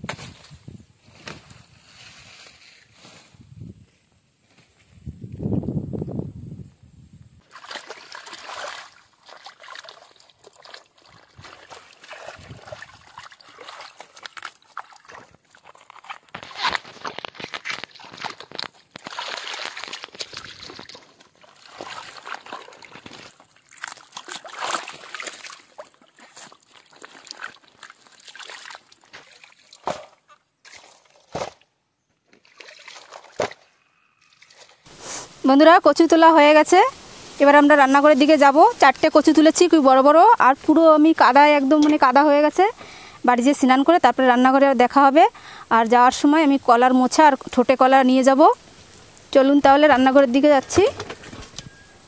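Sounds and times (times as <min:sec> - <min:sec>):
water sloshing and splashing: 0:07.4 - 0:31.6, 0:32.3 - 0:33.7, 0:34.3 - 0:34.9.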